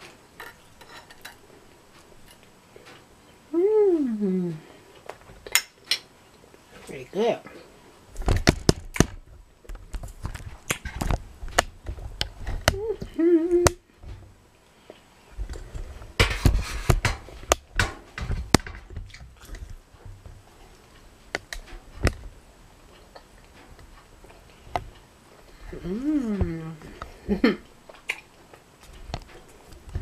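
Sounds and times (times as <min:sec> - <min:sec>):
person humming mmm: 0:03.5 - 0:04.8, 0:12.7 - 0:13.8, 0:25.5 - 0:27.6.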